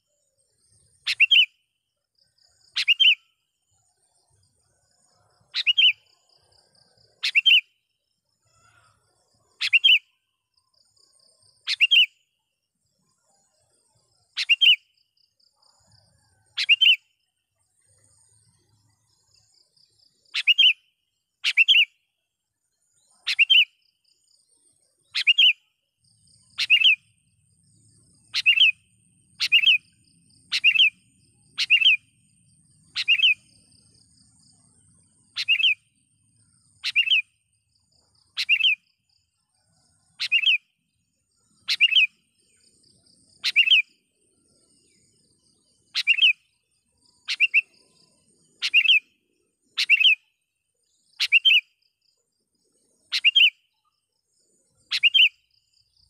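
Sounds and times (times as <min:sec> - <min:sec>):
bulbul calling: 0:01.0 - 0:01.5, 0:02.7 - 0:03.2, 0:05.5 - 0:06.1, 0:07.2 - 0:07.7, 0:09.6 - 0:10.1, 0:11.6 - 0:12.1, 0:14.4 - 0:14.9, 0:20.3 - 0:20.8, 0:21.4 - 0:21.9, 0:23.2 - 0:23.7, 0:25.1 - 0:25.6, 0:26.6 - 0:27.0, 0:28.3 - 0:28.8, 0:29.4 - 0:32.0, 0:32.9 - 0:33.5, 0:35.3 - 0:35.8, 0:36.8 - 0:37.3, 0:38.3 - 0:38.8, 0:40.2 - 0:40.6, 0:41.6 - 0:42.2, 0:43.4 - 0:44.0, 0:45.9 - 0:46.5, 0:47.2 - 0:47.8, 0:48.6 - 0:49.1, 0:49.7 - 0:50.2, 0:51.2 - 0:51.7, 0:53.1 - 0:53.6, 0:54.9 - 0:55.4.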